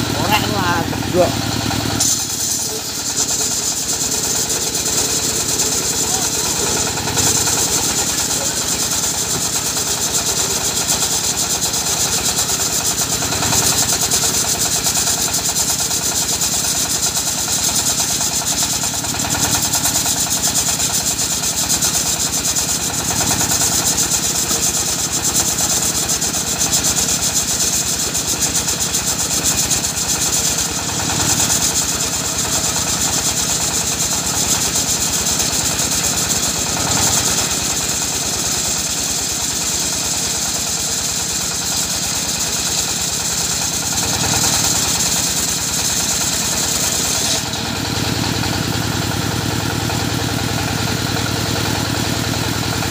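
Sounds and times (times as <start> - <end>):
diesel engine running: 0.0 - 52.9
saw blade cutting hiss: 0.4 - 15.6, 17.6 - 48.5.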